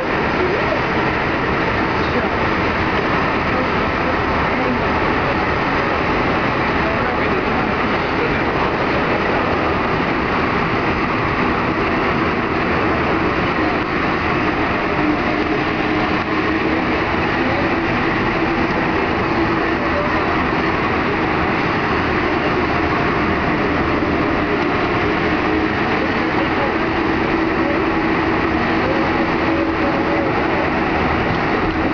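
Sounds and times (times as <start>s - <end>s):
metro train running in tunnel: 0.0s - 31.9s.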